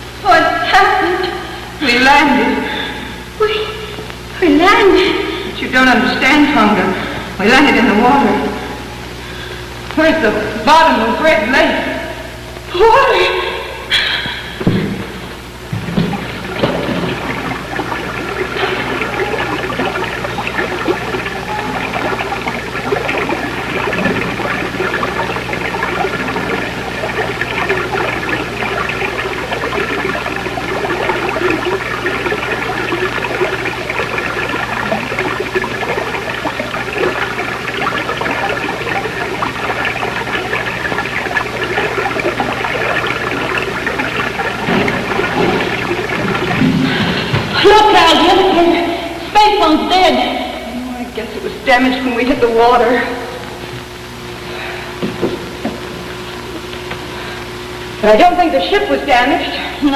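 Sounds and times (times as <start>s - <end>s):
rushing water: 14.4s - 50.7s.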